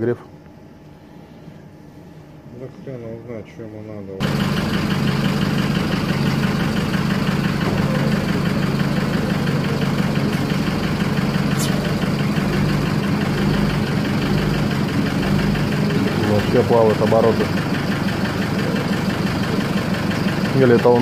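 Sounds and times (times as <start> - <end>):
diesel engine idling: 4.2 - 21.0.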